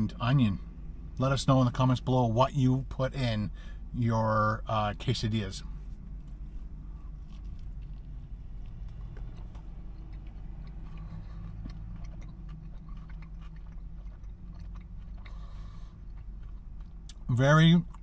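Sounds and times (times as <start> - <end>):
low hum in car cabin: 0.0 - 18.0
man chewing food: 5.6 - 17.3.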